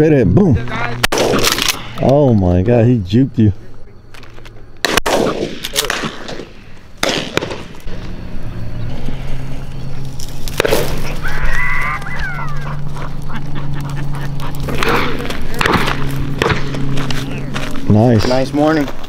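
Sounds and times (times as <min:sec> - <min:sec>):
shotgun shots: 0:01.0 - 0:02.0, 0:04.8 - 0:07.9, 0:10.6 - 0:11.1, 0:14.7 - 0:16.9.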